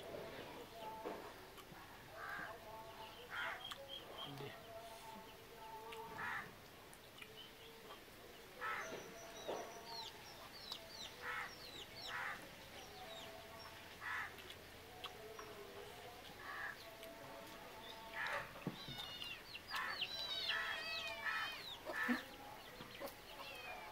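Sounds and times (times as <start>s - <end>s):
small birds chirping: 0.0s - 23.9s
chicken calls: 17.4s - 23.9s.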